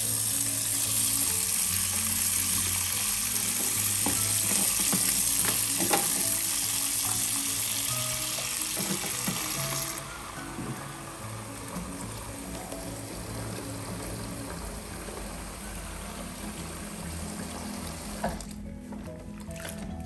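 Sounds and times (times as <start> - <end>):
tap running into sink: 3.4 - 6.6, 8.2 - 15.6, 16.2 - 18.6.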